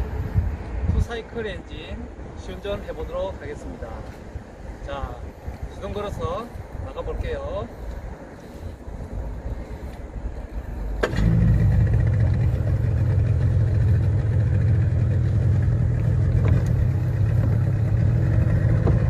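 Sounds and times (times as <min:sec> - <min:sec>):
outboard motor starting and running: 0:11.0 - 0:19.0.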